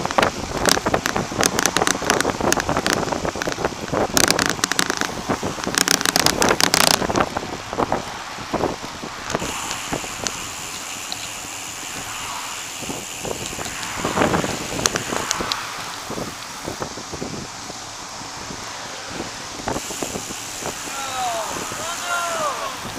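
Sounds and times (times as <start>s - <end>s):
crackling clicks: 0.0s - 7.4s, 9.2s - 16.8s
wind buffeting microphone: 0.0s - 22.9s.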